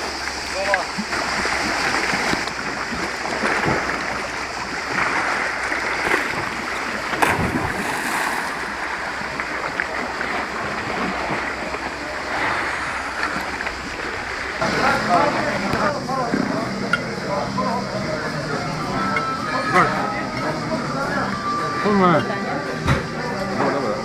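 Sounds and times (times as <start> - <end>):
sea water lapping: 0.0 - 24.0
person splashing into water: 1.1 - 14.6.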